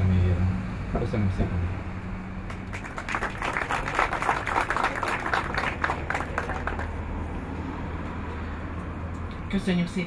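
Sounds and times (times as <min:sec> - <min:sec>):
small crowd applauding: 0:02.4 - 0:07.1.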